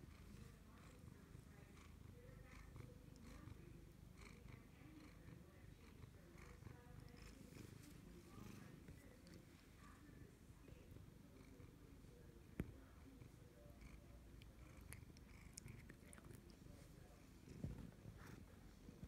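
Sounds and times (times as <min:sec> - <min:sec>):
cat purring: 0:00.0 - 0:19.0
faint rustles: 0:06.5 - 0:11.3.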